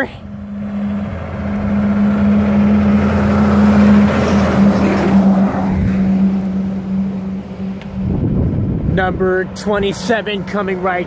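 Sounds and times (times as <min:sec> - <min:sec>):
truck engine humming: 0:00.0 - 0:11.0
tyre and road noise: 0:00.0 - 0:11.0.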